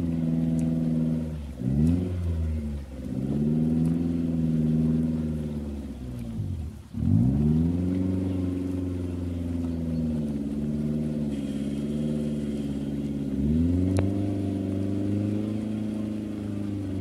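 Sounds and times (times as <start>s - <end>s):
suv engine revving: 0.0s - 17.0s.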